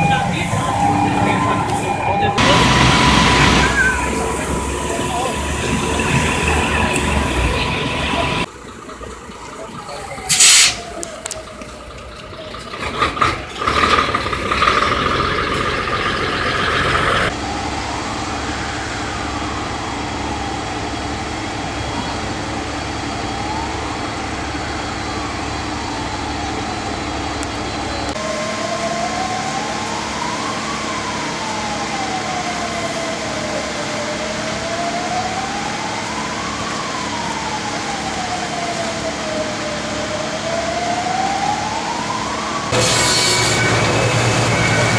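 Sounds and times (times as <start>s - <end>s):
rushing noise: 0.0s - 8.5s
siren wailing: 0.0s - 12.8s, 14.6s - 44.9s.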